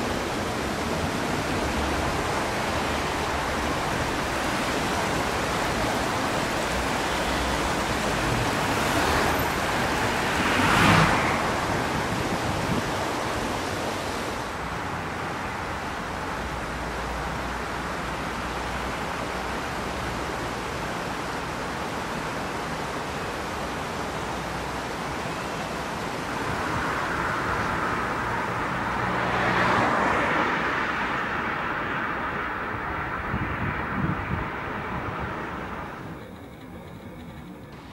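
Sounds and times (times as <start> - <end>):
vehicle passing: 0.0 - 14.4, 26.4 - 37.9
city road traffic: 0.0 - 37.9.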